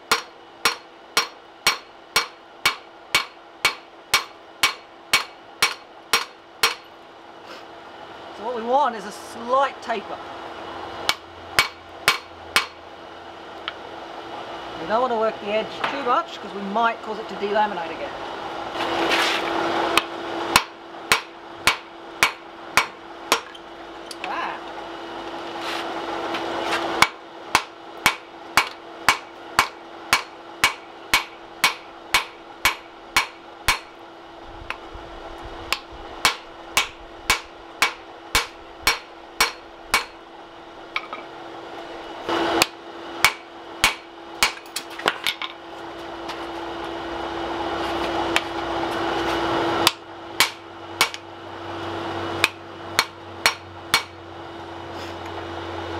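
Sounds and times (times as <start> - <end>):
hammer striking steel on anvil: 0.0 - 6.9, 11.1 - 12.8, 20.0 - 23.6, 27.0 - 33.9, 35.7 - 40.2, 42.6 - 44.7, 49.8 - 51.2, 52.4 - 54.2
steady hum: 0.0 - 55.9.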